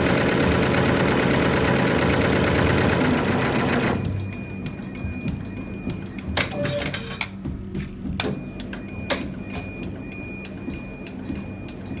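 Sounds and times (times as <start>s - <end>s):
embroidery machine humming and ticking: 0.0s - 12.0s.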